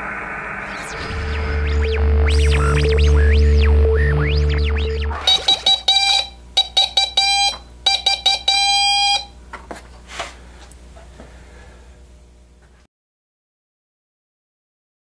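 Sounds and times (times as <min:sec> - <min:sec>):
morse code beeps: 0:02.3 - 0:09.3.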